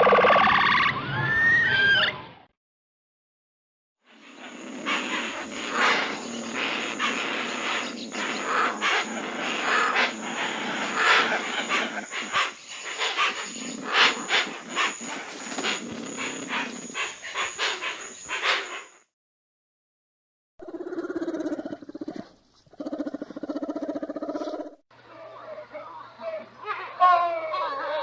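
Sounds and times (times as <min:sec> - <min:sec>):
bird harsh rasps and grunts: 0:04.1 - 0:19.0, 0:20.6 - 0:24.8.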